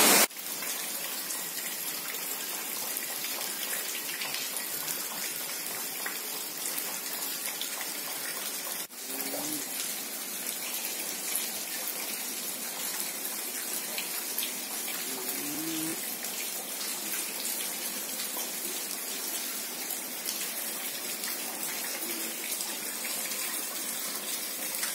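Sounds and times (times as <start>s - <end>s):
water hissing: 0.0s - 0.3s, 15.0s - 16.0s.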